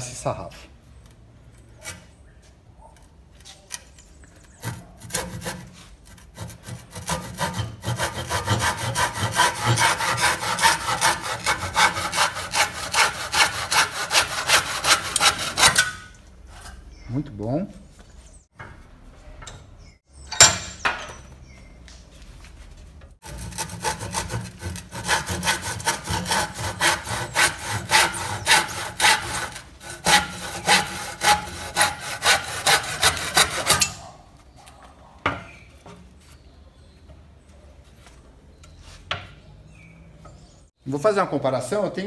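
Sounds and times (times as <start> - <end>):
handsaw rasping through wood: 4.6 - 16.0, 23.2 - 34.0.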